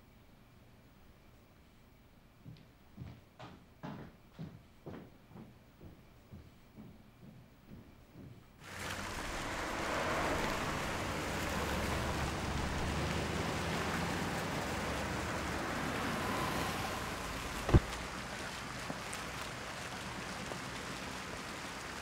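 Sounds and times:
fountain jets splashing: 8.6s - 22.0s
sharp thump: 17.6s - 18.0s.

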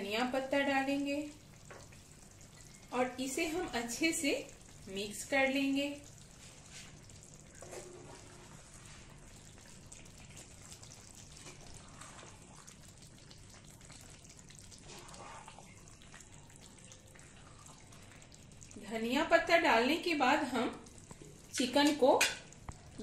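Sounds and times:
simmering pan hiss: 0.0s - 23.0s.

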